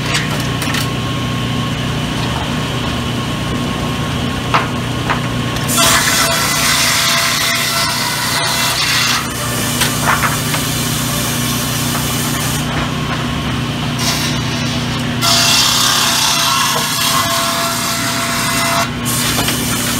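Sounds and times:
saw motor hum: 5.6s - 19.9s
saw rasping through timber: 5.7s - 12.6s, 15.2s - 19.9s.

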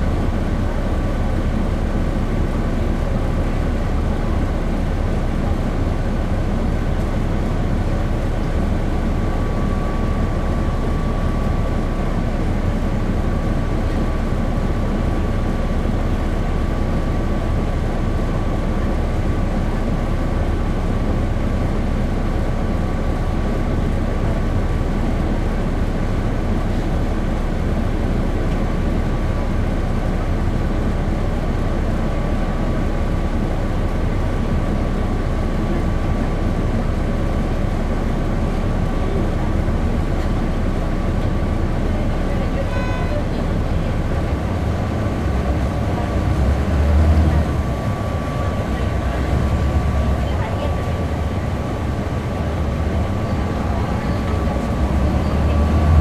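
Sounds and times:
bus diesel engine rumble: 0.0s - 56.0s
thin steady whine: 42.0s - 55.5s.

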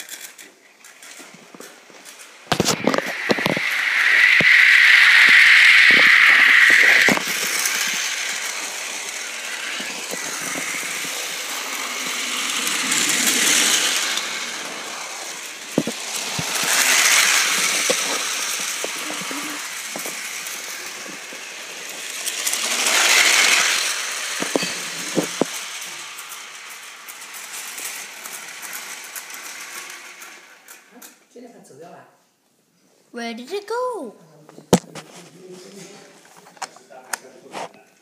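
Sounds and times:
toy train motor whirring: 0.0s - 31.2s.

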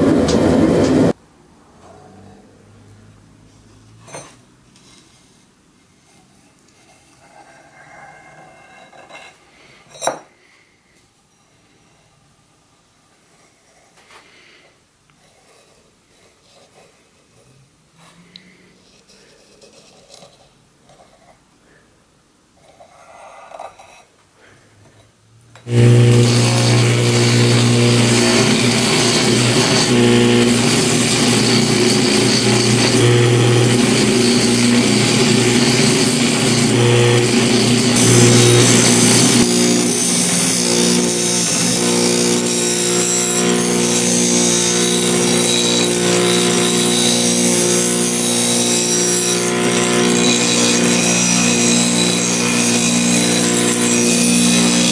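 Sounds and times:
grinder disc grinding steel: 0.0s - 1.2s, 25.6s - 54.9s
motor hum: 0.0s - 1.2s, 25.7s - 54.9s.

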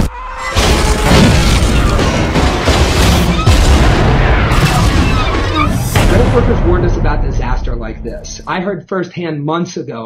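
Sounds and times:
crashing wreckage: 0.5s - 7.2s
booming explosions: 0.5s - 8.5s
heavy hits: 0.5s - 8.5s
deep rumble: 1.1s - 8.5s.

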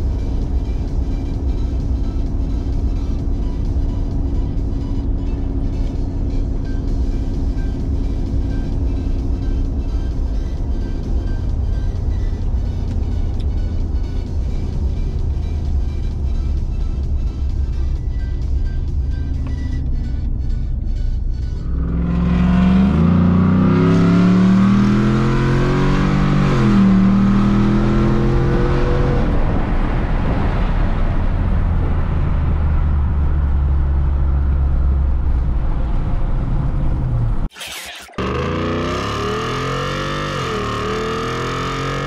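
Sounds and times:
truck engine accelerating: 0.0s - 42.0s.

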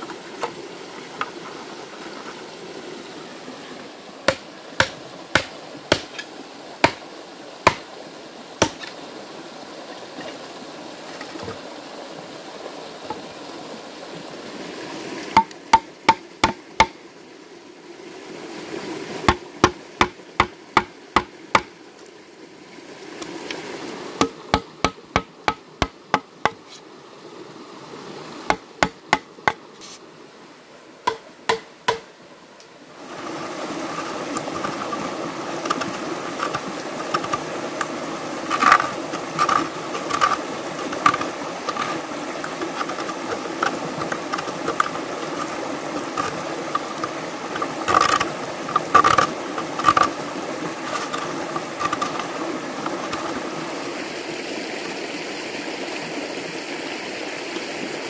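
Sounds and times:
knife chopping bamboo: 4.3s - 7.0s, 7.7s - 7.9s, 8.6s - 8.9s, 15.4s - 17.0s, 19.3s - 21.7s, 24.2s - 26.6s, 28.5s - 29.6s, 31.1s - 32.1s.

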